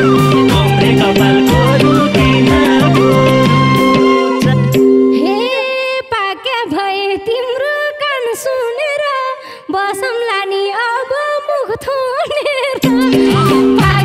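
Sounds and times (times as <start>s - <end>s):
band playing: 0.0s - 5.2s
woman singing into a microphone: 0.0s - 14.0s.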